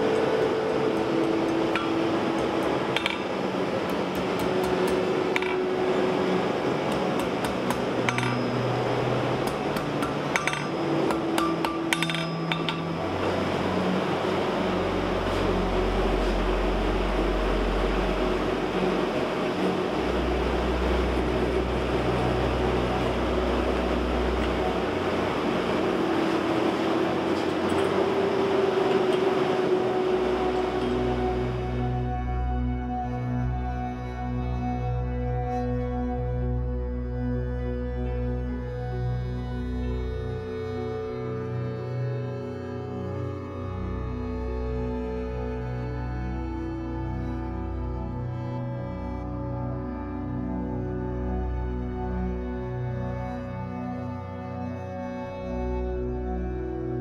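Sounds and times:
ambient low tones: 0:00.0 - 0:57.0
hammer tapping on anvil: 0:01.2 - 0:03.3, 0:03.9 - 0:05.7, 0:06.9 - 0:08.6, 0:09.4 - 0:13.0.

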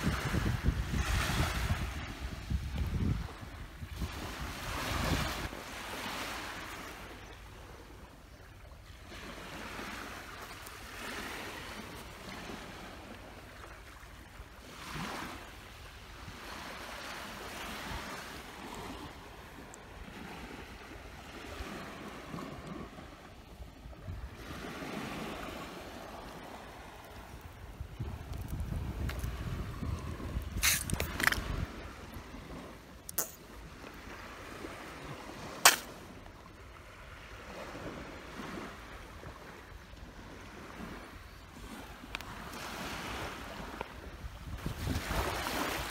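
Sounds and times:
wind on microphone: 0:00.0 - 0:05.6, 0:16.2 - 0:45.9
small waves washing on beach: 0:00.0 - 0:45.9.

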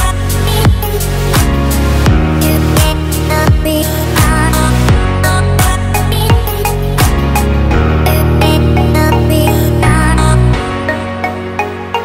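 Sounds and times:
electronic music: 0:00.0 - 0:12.0
deep kick drum: 0:00.7 - 0:08.0.

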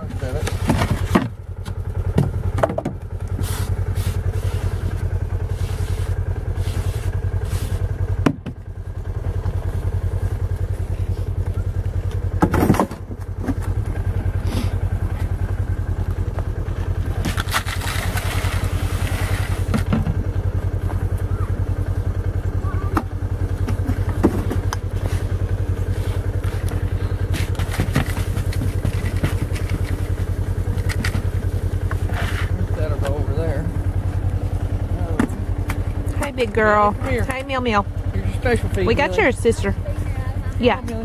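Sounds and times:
engine idling: 0:00.0 - 0:41.0
shovel scraping snow: 0:03.4 - 0:04.9, 0:05.5 - 0:07.8, 0:17.3 - 0:19.7.

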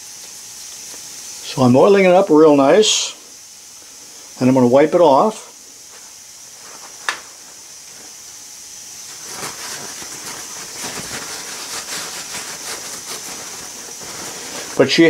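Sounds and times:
steady high hiss: 0:00.0 - 0:15.0
paper towel rustling and rubbing: 0:05.9 - 0:15.0.

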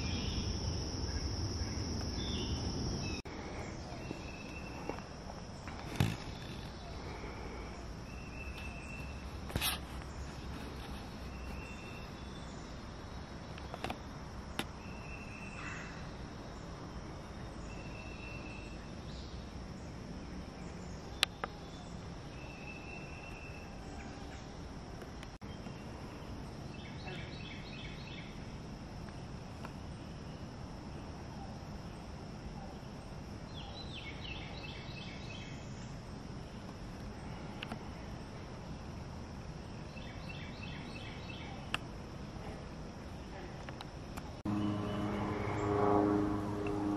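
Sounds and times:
high-pitched insect drone: 0:44.5 - 0:46.9.

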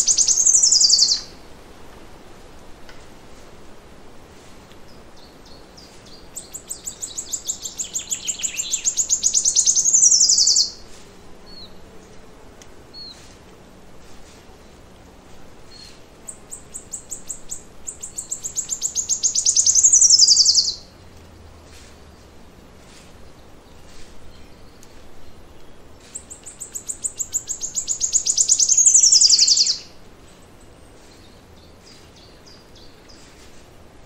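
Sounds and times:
faint bird chirps: 0:00.0 - 0:01.3, 0:04.9 - 0:10.9, 0:15.7 - 0:20.9, 0:25.6 - 0:33.5
songbird singing: 0:00.0 - 0:01.4, 0:04.6 - 0:34.0.

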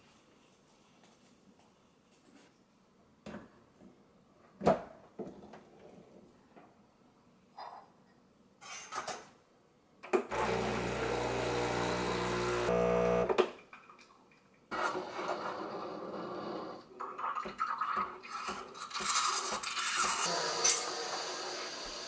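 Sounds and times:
espresso machine pump humming: 0:10.3 - 0:13.4
steam wand hissing in milk: 0:20.0 - 0:22.0.

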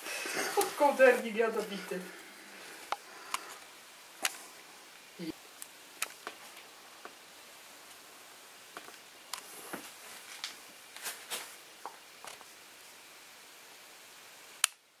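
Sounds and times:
steady low hiss: 0:00.0 - 0:15.0
faint clicks and rustles: 0:00.1 - 0:08.1, 0:08.7 - 0:12.6.

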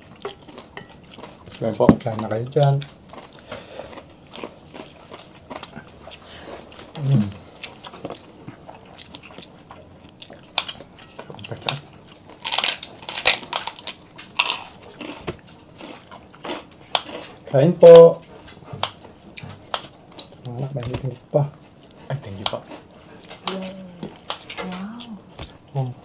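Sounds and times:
chewing and biting food: 0:00.0 - 0:23.5
kitchen scissors cutting ribs: 0:22.2 - 0:24.8.

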